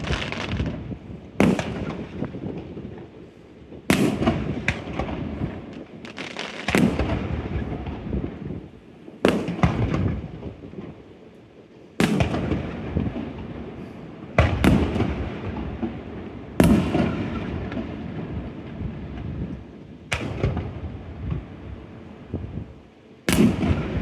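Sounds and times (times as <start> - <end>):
firework shells booming: 1.4 - 3.1, 12.0 - 13.6, 14.3 - 19.3, 23.3 - 24.0.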